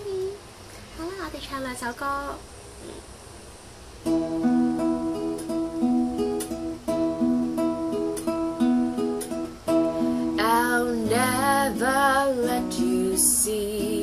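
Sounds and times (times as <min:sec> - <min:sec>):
fingerpicked acoustic guitar: 0:04.0 - 0:14.0.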